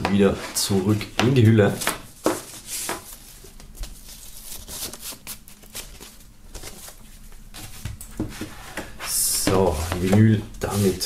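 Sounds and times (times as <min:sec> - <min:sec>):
paper and cardboard rustling: 0:00.0 - 0:11.0.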